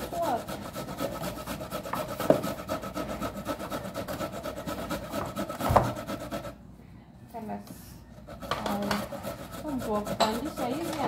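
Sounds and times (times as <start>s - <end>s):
fast scraping strokes: 0.0s - 6.6s, 8.2s - 11.0s
knock: 5.6s - 6.0s.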